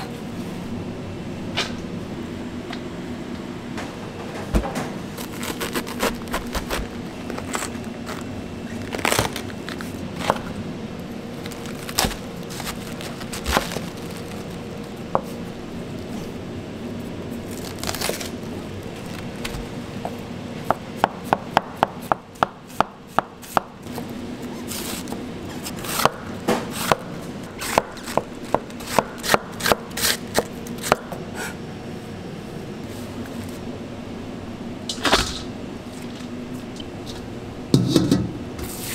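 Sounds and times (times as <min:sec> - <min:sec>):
steady low hum: 0:00.0 - 0:38.9
knife cutting cabbage on board: 0:05.2 - 0:08.2, 0:24.6 - 0:31.6.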